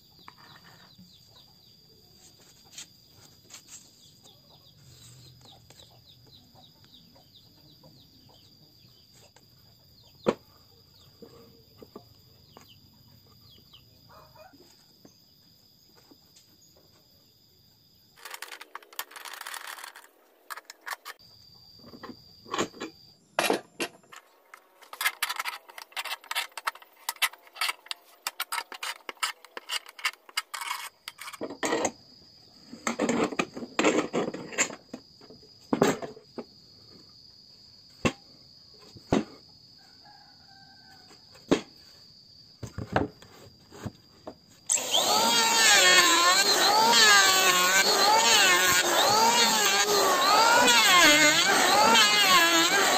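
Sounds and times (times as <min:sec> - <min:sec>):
insect drone: 0:00.0 - 0:52.9
wooden boards and clamp knocking: 0:42.6 - 0:44.0.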